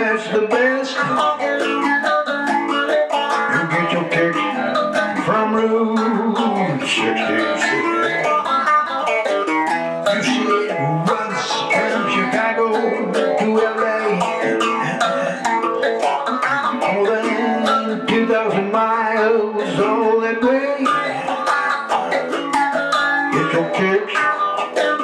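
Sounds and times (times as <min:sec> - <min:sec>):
electric guitar rock and roll: 0:00.0 - 0:25.0.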